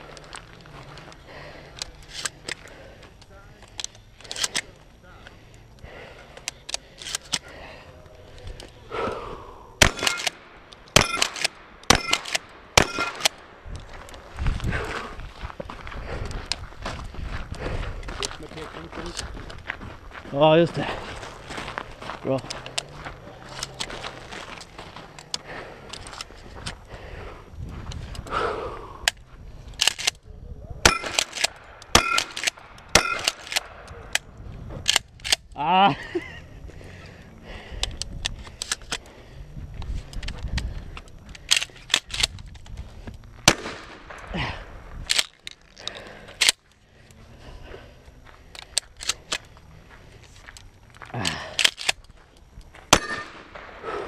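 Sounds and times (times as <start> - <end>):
metallic ring of steel targets: 9.8 - 10.3, 11.0 - 13.3, 30.8 - 33.4, 53.0 - 53.4
shotgun blasts: 9.8 - 13.6, 30.8 - 33.9, 43.4 - 44.4, 52.9 - 54.0.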